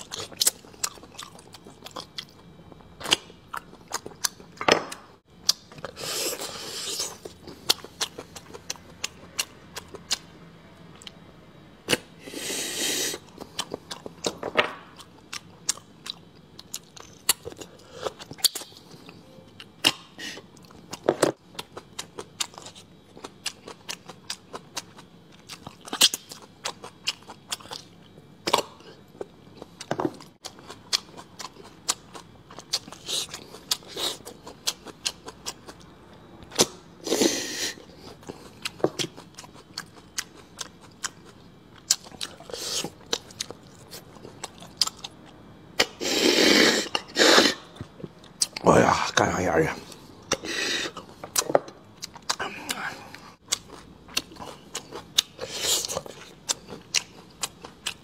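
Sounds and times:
person chewing food: 0.0 - 10.3, 10.9 - 11.2, 11.8 - 48.6, 49.8 - 58.0
breathy noise: 52.4 - 53.4.

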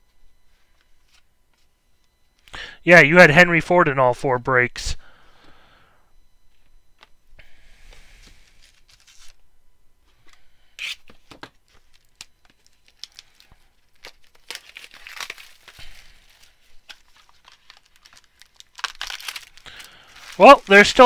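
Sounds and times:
plastic wrap tearing and crinkling: 11.9 - 21.0.

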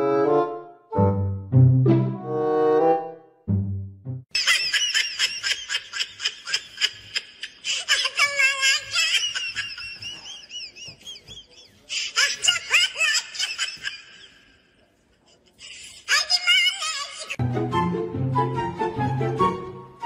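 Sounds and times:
person shrieking and laughing: 4.4 - 14.5.

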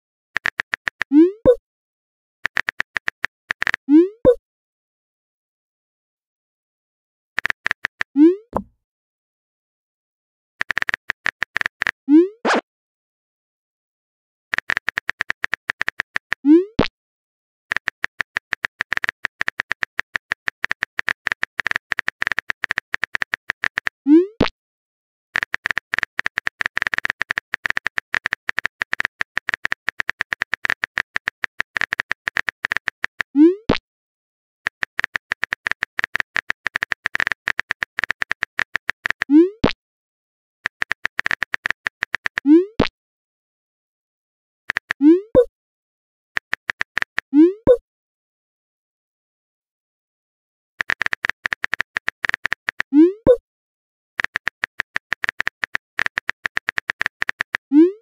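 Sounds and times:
phone keyboard typing clicks: 0.4 - 1.1, 7.4 - 8.7, 10.6 - 12.0, 14.5 - 16.4, 17.7 - 24.0, 25.4 - 33.3, 34.7 - 39.8, 40.6 - 42.9, 44.7 - 45.5, 46.4 - 47.8, 50.8 - 53.4, 54.2 - 57.6.

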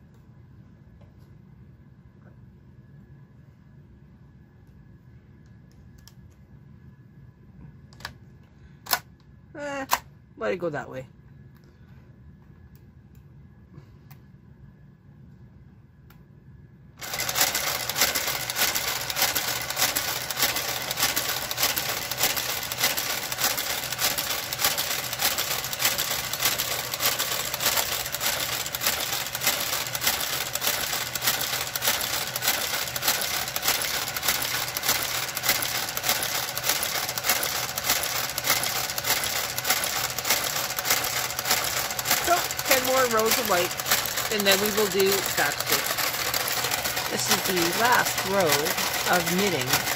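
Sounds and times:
knitting machine clattering: 17.0 - 49.9.

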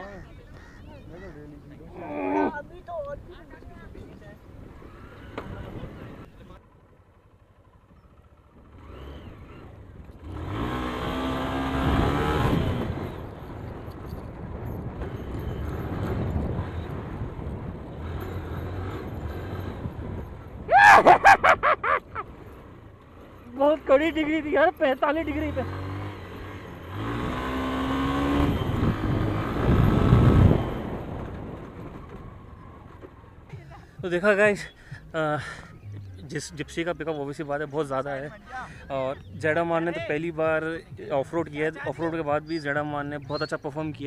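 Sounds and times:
motorcycle engine revving: 4.7 - 34.2.

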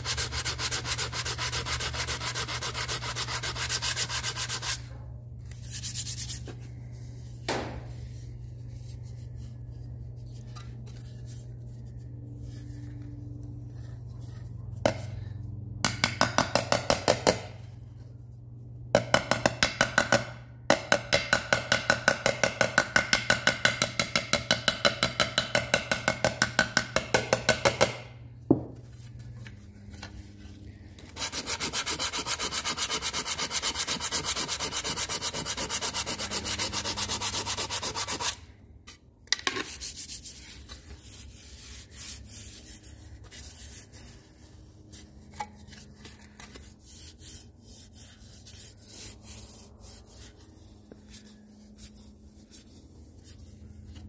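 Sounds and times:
sandpaper sanding metal: 0.0 - 4.9, 5.6 - 6.6, 31.1 - 38.4, 39.6 - 45.1, 46.6 - 53.5.

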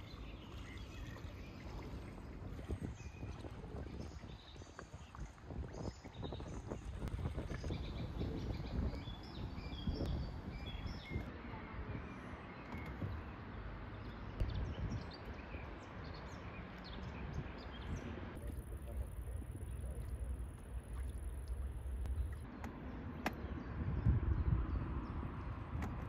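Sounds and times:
birds chirping: 0.0 - 25.2
low outdoor rumble: 18.2 - 26.0.

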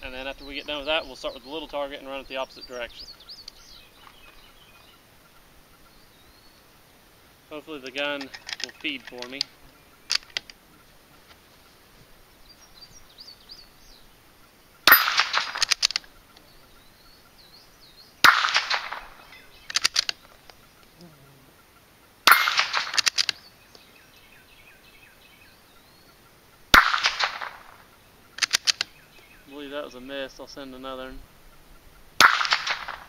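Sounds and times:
rifle bolt clicks: 8.2 - 9.5, 10.1 - 10.6, 14.9 - 16.1, 19.7 - 20.6, 22.3 - 23.8, 28.4 - 28.9
rifle shots: 14.8 - 16.1, 18.2 - 20.2, 22.2 - 23.4, 26.7 - 28.8, 32.2 - 33.0.

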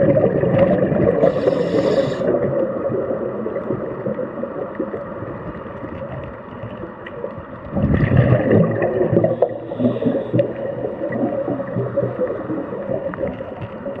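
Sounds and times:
air bubbling underwater: 0.0 - 5.0, 7.7 - 13.4.

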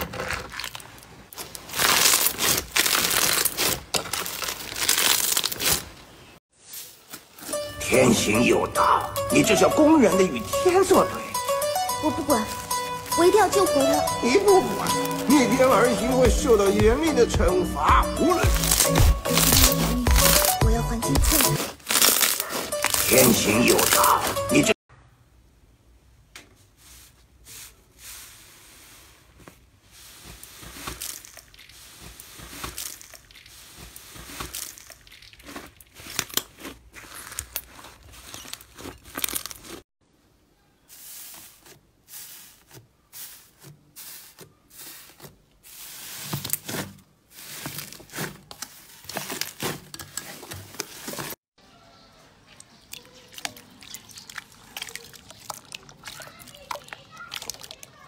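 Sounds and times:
slime crackling and popping: 0.5 - 5.8, 21.3 - 24.3.

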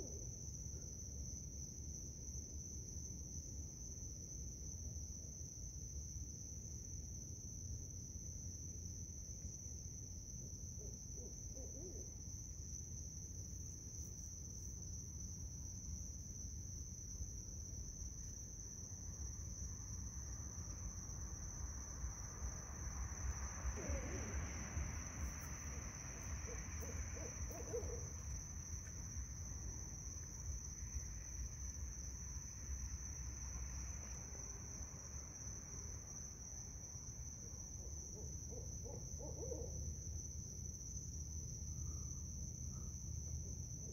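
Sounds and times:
distant owls hooting: 10.8 - 12.2, 23.6 - 28.4, 37.8 - 39.8.

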